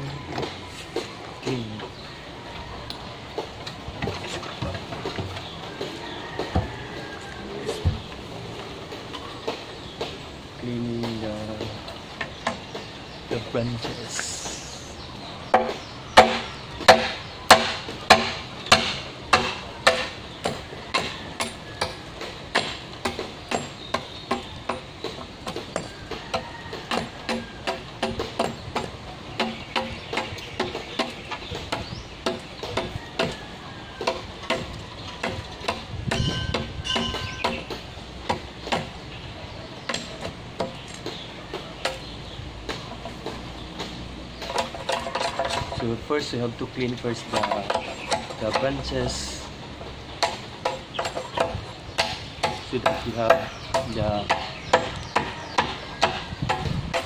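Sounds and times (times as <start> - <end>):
blade chopping bamboo: 15.5 - 39.2.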